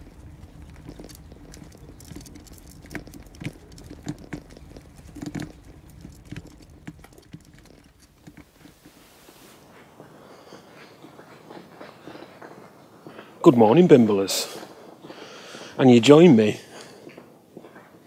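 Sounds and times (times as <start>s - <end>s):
car engine rumble: 0.0s - 9.7s
wheels rolling over grit: 0.0s - 18.0s.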